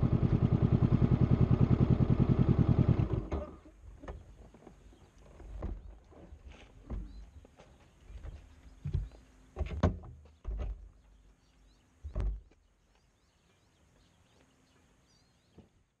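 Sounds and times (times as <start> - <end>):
dull thumps and knocks: 5.5 - 5.9, 6.8 - 7.3, 8.2 - 10.8, 12.1 - 12.6
faint high bird chirps: 10.3 - 15.8.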